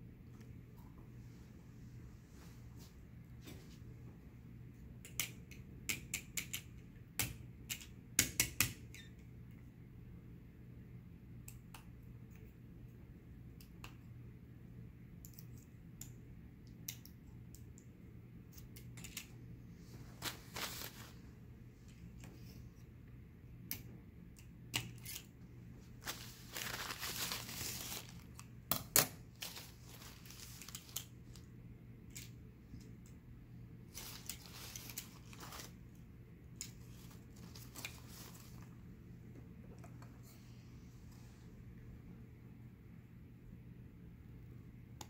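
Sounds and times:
steady low hum: 0:09.4 - 0:45.0
crinkling rustles: 0:19.8 - 0:21.3, 0:25.8 - 0:28.5, 0:29.3 - 0:31.5, 0:33.9 - 0:36.0, 0:36.6 - 0:38.8.

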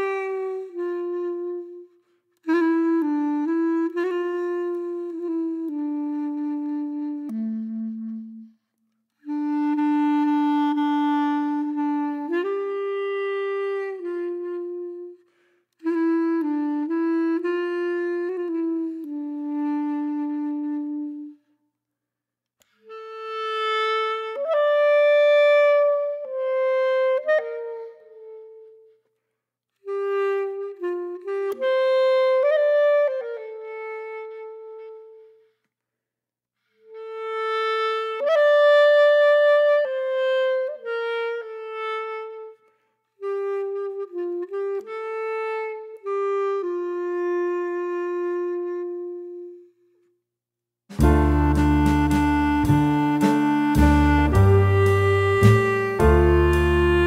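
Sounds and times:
background music melody: 0:50.9 - 0:57.0.

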